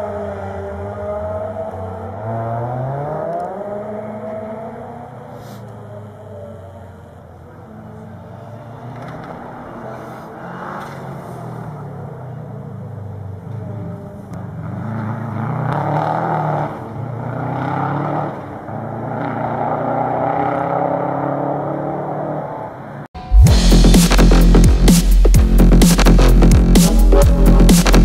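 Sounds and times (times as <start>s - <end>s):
car engine revving hard: 0.0s - 5.7s, 13.8s - 22.8s.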